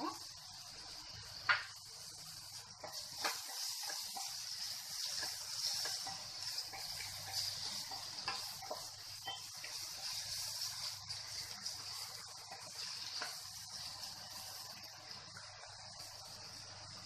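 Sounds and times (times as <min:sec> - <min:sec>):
vegetables sizzling in oil: 0:00.0 - 0:17.0
spatula scraping pan: 0:02.0 - 0:14.7.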